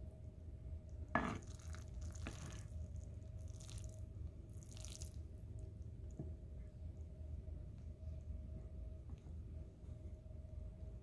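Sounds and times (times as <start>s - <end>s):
low steady hum: 0.0s - 11.0s
spoon stirring wet rice: 1.2s - 4.0s.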